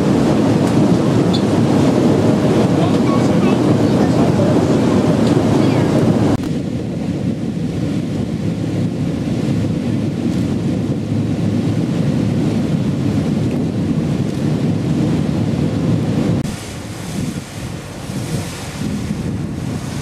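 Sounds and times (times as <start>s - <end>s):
boat running noise: 0.0s - 20.0s
water passing beneath boat: 0.0s - 20.0s
wind on microphone: 0.0s - 20.0s.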